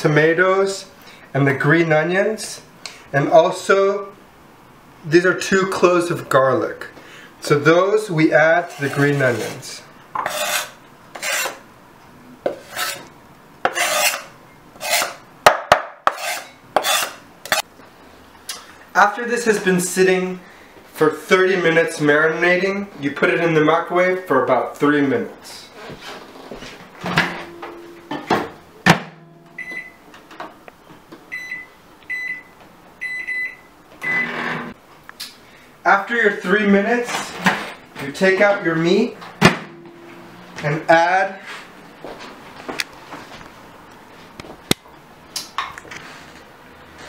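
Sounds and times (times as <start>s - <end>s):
knife scraping cutting board: 8.6s - 11.6s, 12.5s - 13.1s, 13.7s - 15.2s, 16.1s - 17.6s
microwave door banging shut: 39.4s - 39.8s.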